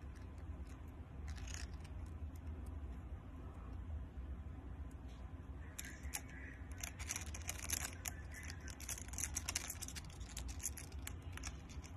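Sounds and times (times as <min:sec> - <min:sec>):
steady low hum: 0:00.0 - 0:11.9
insect jaws crunching: 0:01.2 - 0:02.1.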